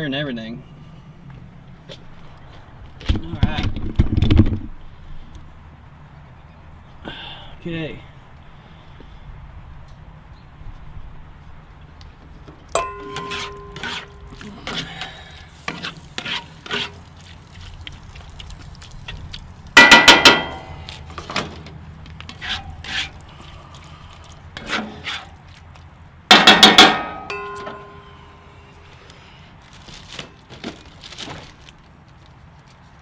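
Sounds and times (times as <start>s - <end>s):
short ringing clanks: 12.8s - 14.2s, 19.8s - 20.8s, 26.4s - 28.6s
metal spatula scraping skillet: 12.8s - 17.1s, 22.3s - 23.3s, 24.6s - 25.4s.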